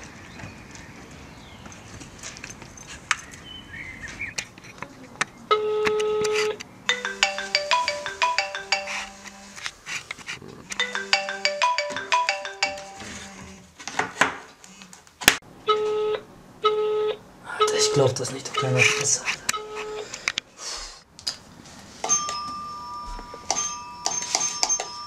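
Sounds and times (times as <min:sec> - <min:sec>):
beeping ringback tone: 0:06.9 - 0:09.6, 0:10.8 - 0:13.5
phone ringtone plinking tune: 0:06.9 - 0:09.6, 0:10.8 - 0:13.5, 0:22.0 - 0:25.0.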